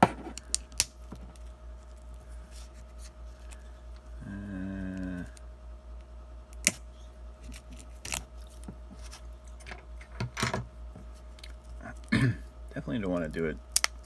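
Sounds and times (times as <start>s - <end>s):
person grunting: 4.1s - 5.4s.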